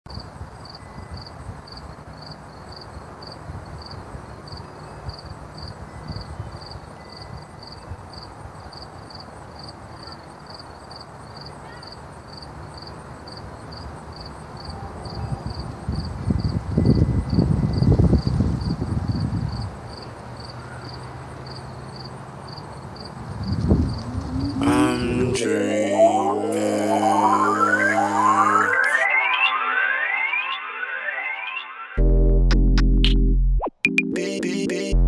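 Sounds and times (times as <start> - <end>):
low rumbling hum: 23.5 - 27.2
heavy bass: 32.0 - 35.0.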